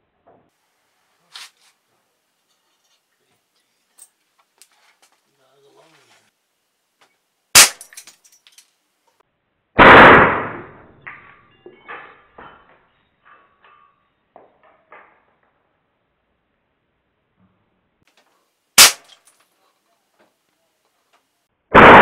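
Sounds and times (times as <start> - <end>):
air rifle shot: 7.6 - 7.8, 9.8 - 10.9, 18.8 - 19.1, 21.7 - 22.0.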